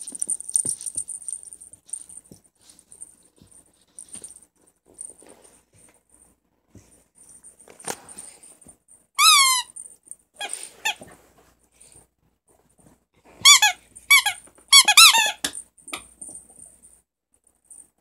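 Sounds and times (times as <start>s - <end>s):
squeaky toy squeaking: 9.2s - 9.8s, 13.4s - 15.5s.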